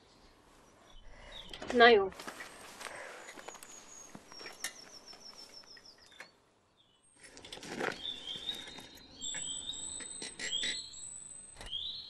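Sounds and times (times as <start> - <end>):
birds chirping: 0.0 - 12.0
rustling noise: 1.6 - 4.6.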